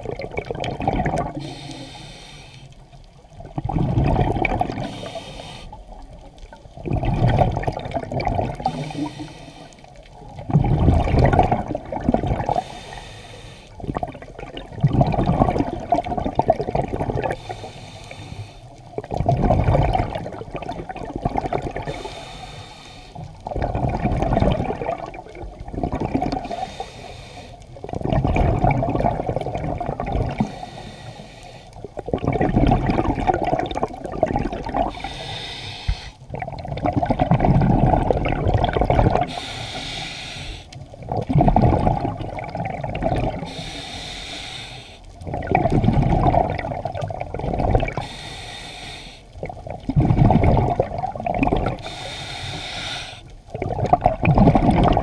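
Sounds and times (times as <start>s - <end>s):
exhaled air bubbling underwater: 0.0s - 55.0s
regulator inhalation hiss: 1.4s - 2.9s, 4.8s - 5.8s, 8.7s - 10.0s, 12.5s - 13.8s, 17.4s - 18.8s, 21.9s - 23.3s, 26.4s - 27.6s, 30.4s - 31.8s, 34.9s - 36.2s, 39.3s - 40.8s, 43.4s - 45.0s, 48.0s - 49.3s, 51.8s - 53.3s.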